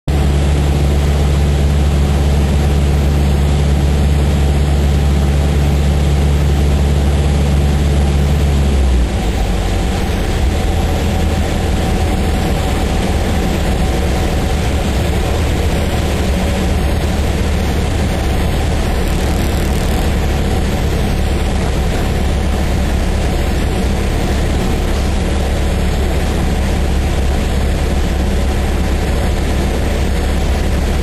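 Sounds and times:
aircraft engine and propeller drone: 0.1s - 31.0s
airflow rushing: 9.0s - 31.0s.

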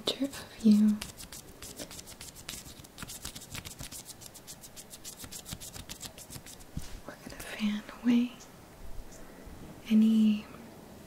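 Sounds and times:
fingers crackling feathery object: 0.6s - 6.8s.

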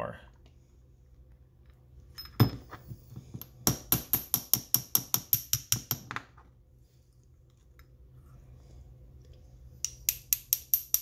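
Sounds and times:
steel rod tapping metal: 9.8s - 11.0s.

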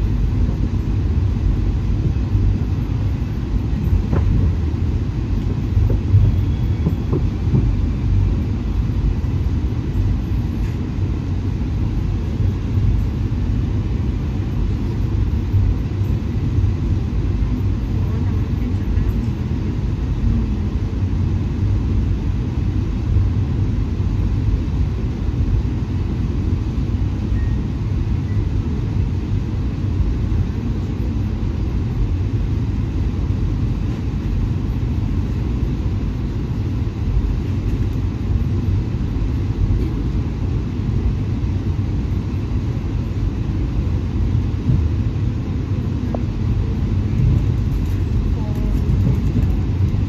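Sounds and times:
train rumble heard on board: 0.0s - 50.0s.

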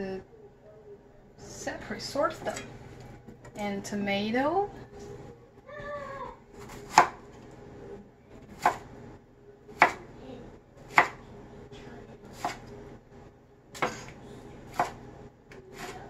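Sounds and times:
knife chopping on cutting board: 6.6s - 7.2s, 9.8s - 10.0s, 10.9s - 11.2s, 14.7s - 15.0s.

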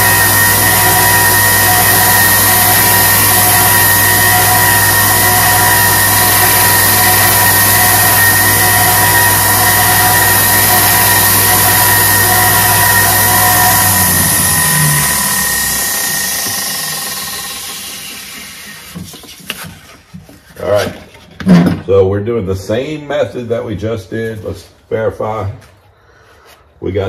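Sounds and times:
belt winding down: 0.0s - 19.0s
belt sander humming and hissing: 0.0s - 19.2s.

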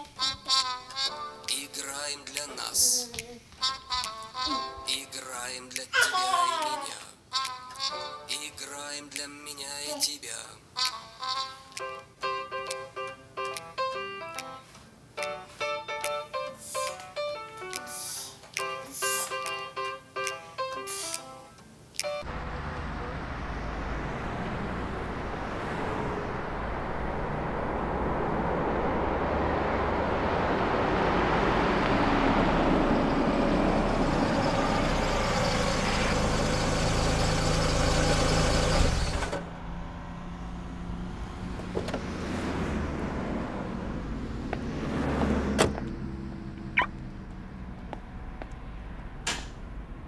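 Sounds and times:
car engine and tyre noise: 22.0s - 50.0s.

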